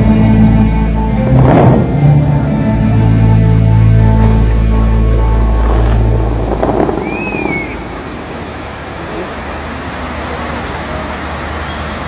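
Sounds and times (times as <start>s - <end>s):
crowd noise: 0.0s - 12.0s
fountain show music: 0.0s - 12.0s
rush of falling fountain water: 4.9s - 12.0s
rising and falling whistle: 6.6s - 8.4s.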